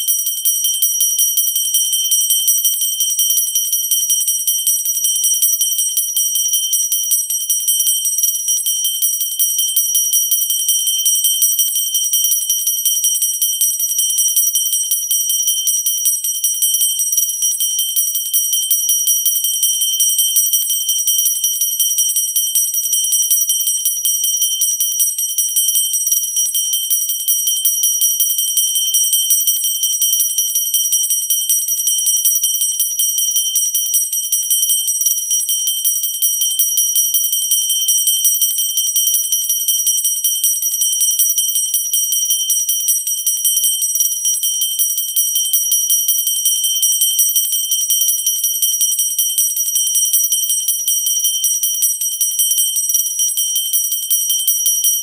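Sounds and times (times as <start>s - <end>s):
handheld bell ringing: 0.0s - 55.0s.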